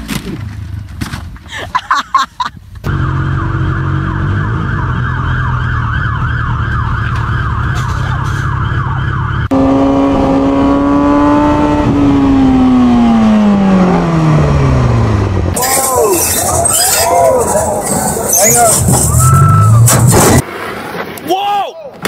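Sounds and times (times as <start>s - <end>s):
emergency siren yelping: 2.9s - 9.5s, 15.6s - 19.9s
motorcycle engine: 2.9s - 20.4s.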